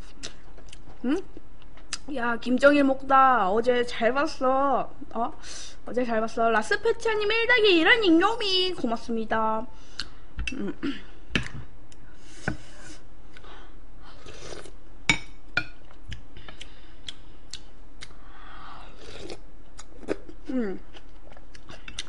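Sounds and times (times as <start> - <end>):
mouth sounds of eating: 16.1 - 22.0.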